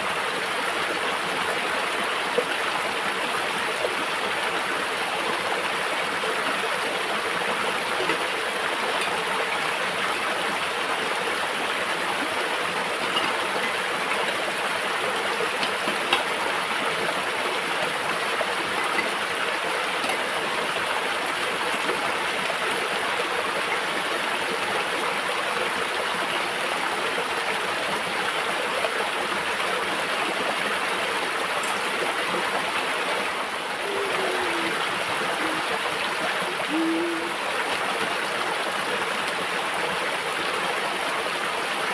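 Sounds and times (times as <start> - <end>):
stream rushing over rock: 0.0 - 41.9
dishes clinking: 13.0 - 14.4.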